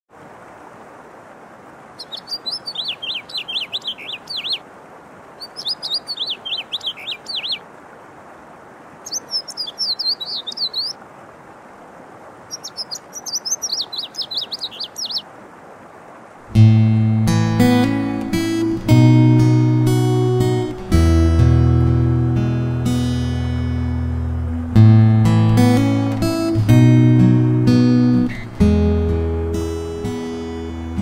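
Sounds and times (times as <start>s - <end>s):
faint steady hiss: 0.1s - 31.0s
songbird singing: 1.9s - 4.7s, 5.3s - 7.7s, 8.3s - 11.0s, 12.4s - 15.4s.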